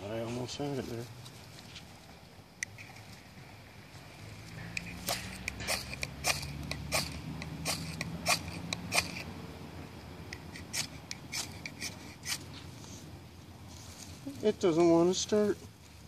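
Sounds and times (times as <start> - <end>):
ferro rod scraped with striker: 4.6 - 9.3, 10.3 - 12.5.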